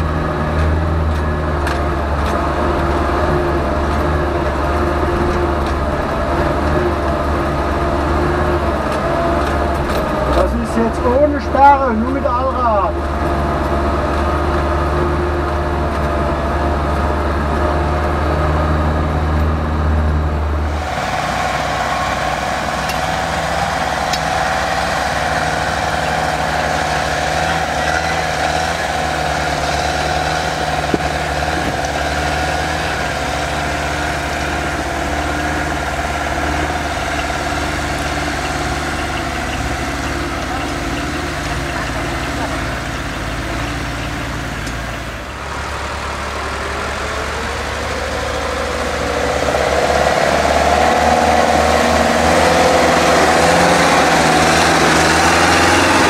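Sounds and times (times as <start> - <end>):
diesel truck engine drone: 0.0 - 56.0
steady whine: 20.3 - 43.1, 44.2 - 56.0.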